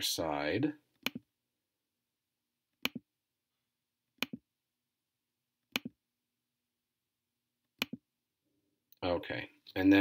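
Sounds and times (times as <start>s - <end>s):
computer mouse clicks: 1.0s - 1.2s, 2.8s - 3.1s, 4.2s - 4.4s, 5.7s - 6.0s, 7.8s - 8.0s.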